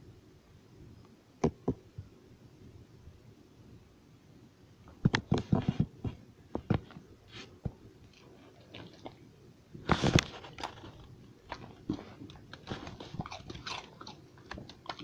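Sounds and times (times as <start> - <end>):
crunchy snacks being chewed: 9.9 - 15.0.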